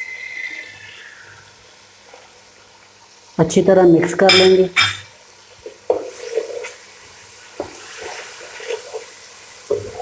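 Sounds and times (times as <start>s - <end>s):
faint frying sizzle: 0.0s - 10.0s
wooden spoon scraping a pot: 5.6s - 6.9s, 7.6s - 10.0s.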